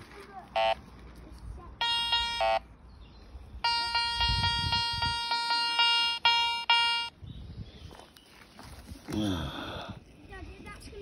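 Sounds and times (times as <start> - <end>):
metal detector beeps: 0.5 - 0.8, 1.8 - 2.6, 3.6 - 7.2
metal detector long tone: 1.8 - 2.6, 3.6 - 7.2.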